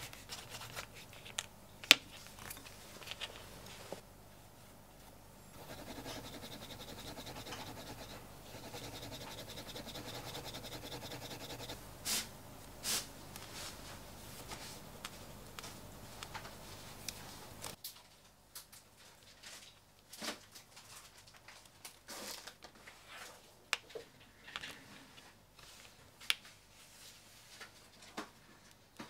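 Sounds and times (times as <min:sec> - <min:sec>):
wood rubbing on leather edge: 0:05.6 - 0:11.8.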